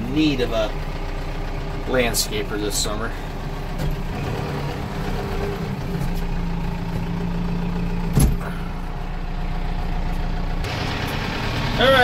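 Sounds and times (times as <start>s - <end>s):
diesel tractor engine running: 0.0s - 12.0s
loud clunk: 8.1s - 8.6s.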